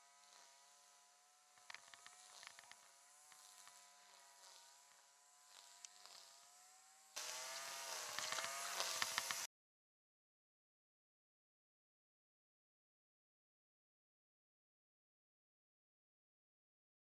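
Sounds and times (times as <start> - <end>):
motor droning hum: 0.0 - 9.5
small clicks and knocks: 1.5 - 6.2, 8.1 - 9.5.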